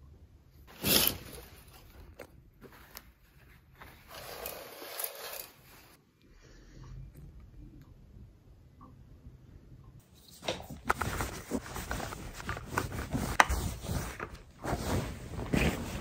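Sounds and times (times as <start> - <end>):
curtain hooks scraping along a rail: 4.1 - 6.0.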